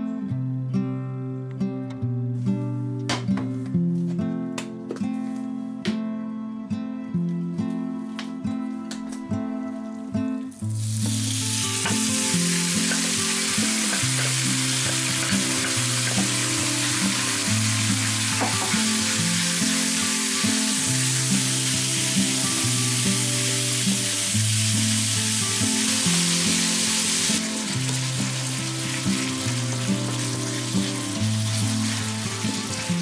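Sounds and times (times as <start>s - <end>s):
meat sizzling in a frying pan: 10.6s - 33.0s.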